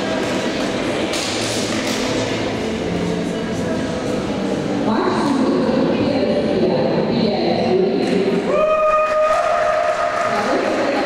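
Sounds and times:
murmur of many voices: 0:00.0 - 0:08.5.

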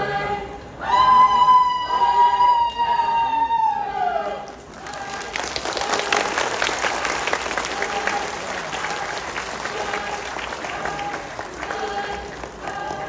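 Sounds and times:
audience voices: 0:00.0 - 0:13.0
crowd applauding: 0:04.5 - 0:13.0.

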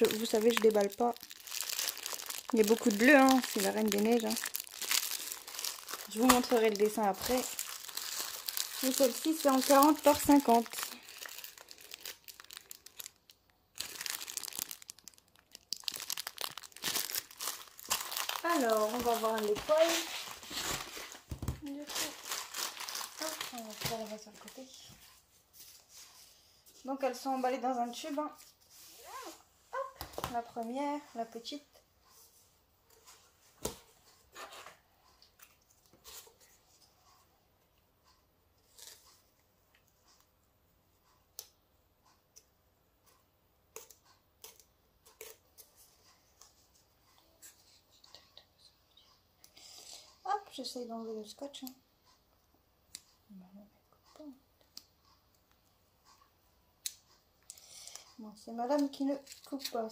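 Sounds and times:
plastic packaging crinkling: 0:00.0 - 0:24.8.

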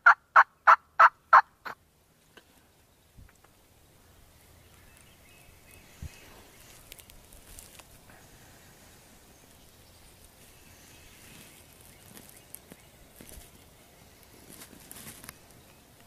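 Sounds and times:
faint rustles and clicks: 0:04.8 - 0:16.0.

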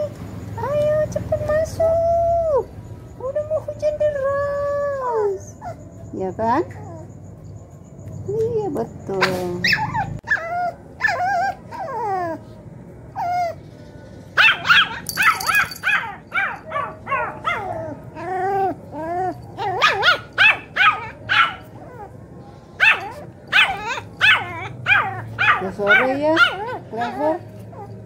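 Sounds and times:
dog whining yips and barks: 0:09.2 - 0:12.1, 0:14.4 - 0:22.2, 0:22.8 - 0:28.0.

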